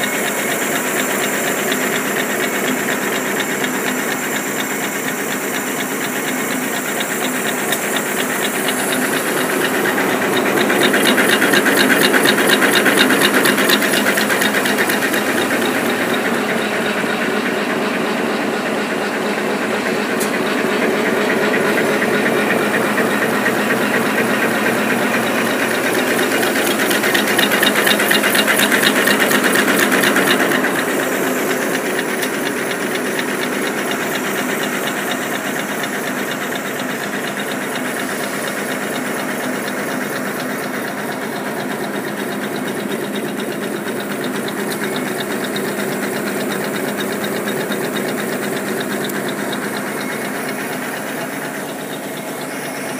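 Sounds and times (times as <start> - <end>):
folding machine clattering: 6.2 - 17.9.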